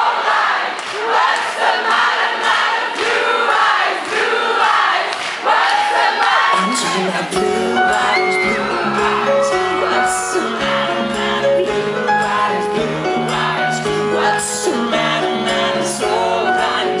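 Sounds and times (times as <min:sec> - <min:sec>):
band playing pop music: 0:06.4 - 0:17.0
man singing: 0:06.5 - 0:17.0.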